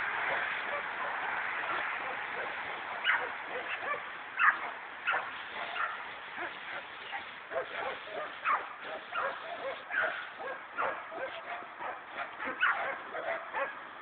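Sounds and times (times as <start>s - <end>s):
dog barking and yipping: 0.3s - 13.8s.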